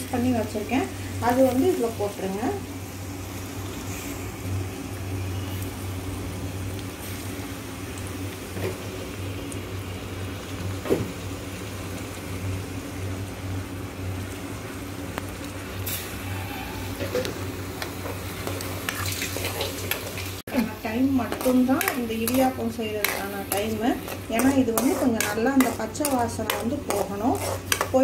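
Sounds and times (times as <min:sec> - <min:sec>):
paste sizzling in oil: 0:00.0 - 0:28.0
steel spoon scraping pan: 0:21.2 - 0:28.0.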